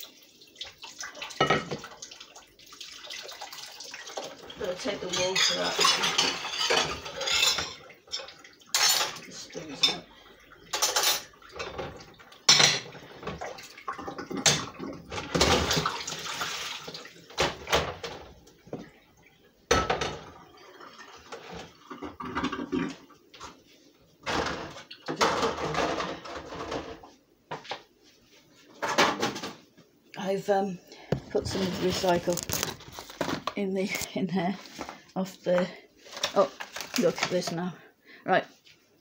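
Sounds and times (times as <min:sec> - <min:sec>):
water pouring through sieve: 0:00.0 - 0:06.4, 0:13.1 - 0:17.3
metal pan clattering: 0:04.8 - 0:09.2.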